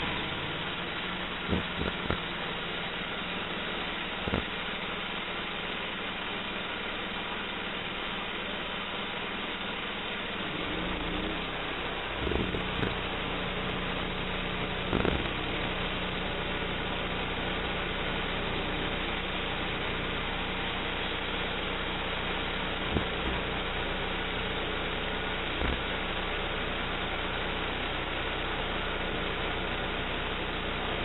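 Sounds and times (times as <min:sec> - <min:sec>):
band saw cutting log: 0:00.0 - 0:02.6, 0:10.4 - 0:13.9, 0:14.7 - 0:15.5
gas engine running: 0:00.0 - 0:31.0.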